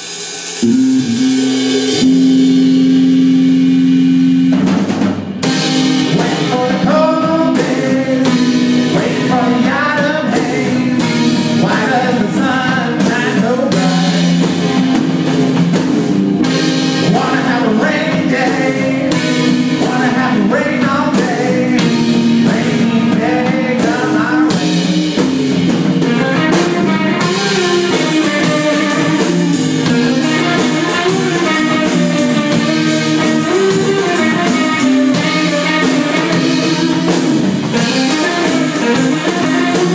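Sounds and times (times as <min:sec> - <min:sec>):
electric guitars playing: 0:00.6 - 0:39.9
person singing: 0:06.0 - 0:14.8, 0:16.9 - 0:25.2, 0:26.0 - 0:39.9.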